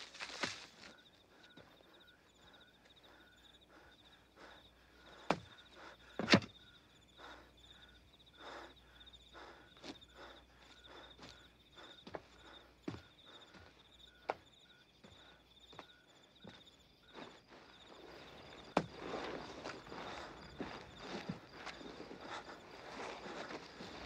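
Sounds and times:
footsteps in loose soil: 0.0s - 1.1s, 16.5s - 24.0s
crickets chirping: 0.0s - 24.0s.

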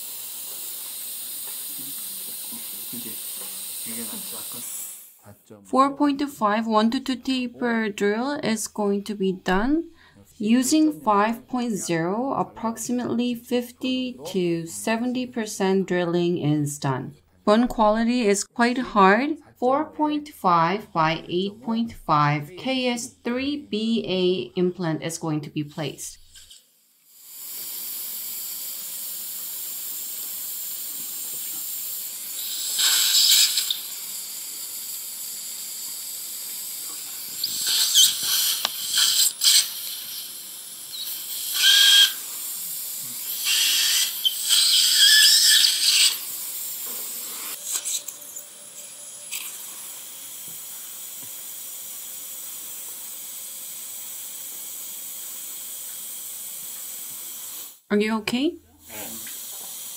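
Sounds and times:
surgical suction hissing: 0.0s - 5.3s, 26.2s - 57.9s, 58.8s - 59.9s.

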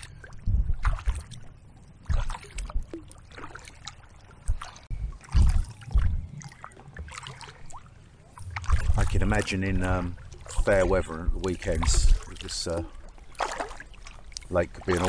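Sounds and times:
wind buffeting microphone: 0.0s - 3.0s, 4.4s - 7.2s, 7.9s - 12.7s
paddle splashing in water: 0.0s - 15.0s.

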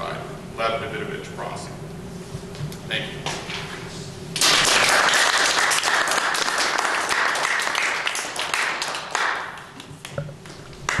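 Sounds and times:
audience applauding: 4.4s - 9.7s.

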